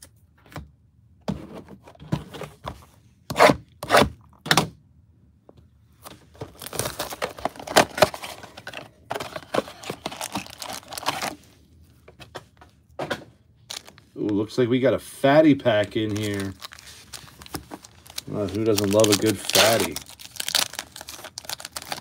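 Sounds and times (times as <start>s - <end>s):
cardboard box tearing open: 16.1s - 22.0s.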